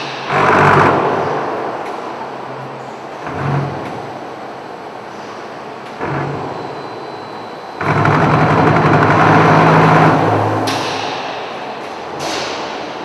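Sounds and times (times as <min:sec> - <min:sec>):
low motor hum: 0:07.8 - 0:10.8
machinery clattering rattle: 0:07.8 - 0:13.0.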